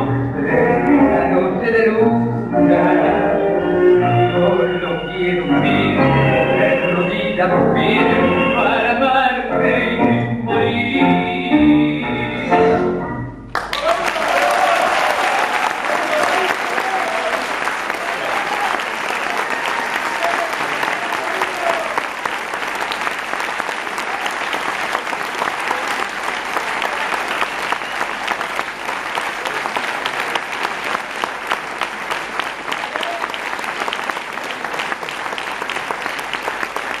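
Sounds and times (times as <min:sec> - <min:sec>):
audience applauding: 0:13.5 - 0:37.0.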